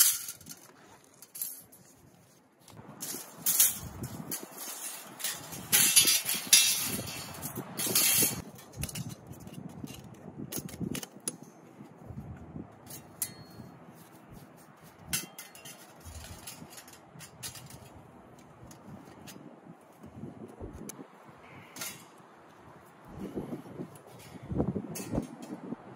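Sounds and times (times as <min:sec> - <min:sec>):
metal panels scraping: 0:00.0 - 0:11.4, 0:12.8 - 0:19.5, 0:21.5 - 0:22.2.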